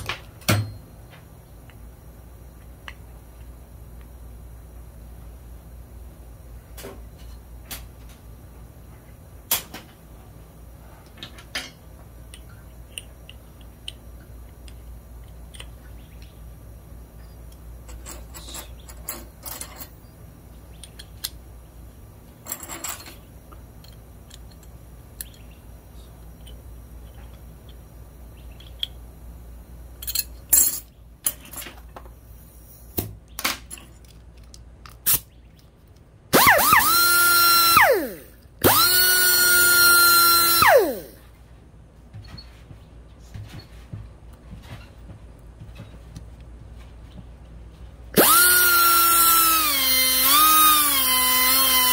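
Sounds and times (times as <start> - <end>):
steady low hum: 0.0 - 51.9
metal tools clinking on workbench: 17.8 - 20.0, 22.4 - 23.3, 30.0 - 31.9.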